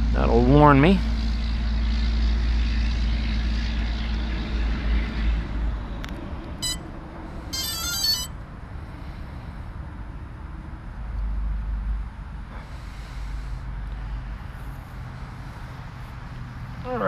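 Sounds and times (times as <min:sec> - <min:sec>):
high electronic beeps: 0:07.6 - 0:08.3.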